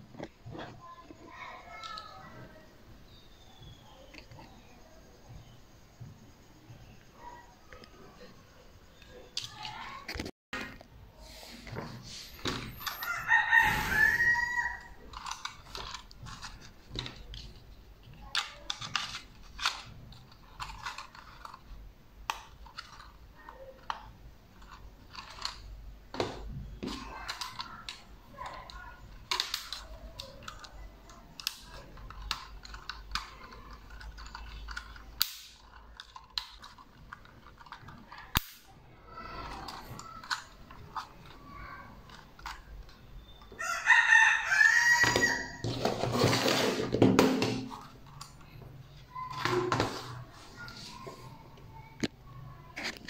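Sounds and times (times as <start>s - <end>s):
rooster crowing: 12.8s - 15.0s, 43.6s - 45.7s
plastic clicks and snaps: 15.0s - 38.7s.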